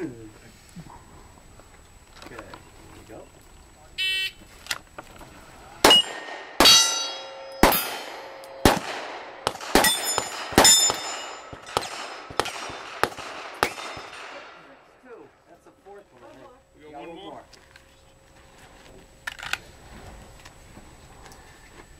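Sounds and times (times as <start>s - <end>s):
gunshots: 5.8s - 14.6s
steel plates ringing: 5.9s - 8.7s, 9.8s - 11.9s.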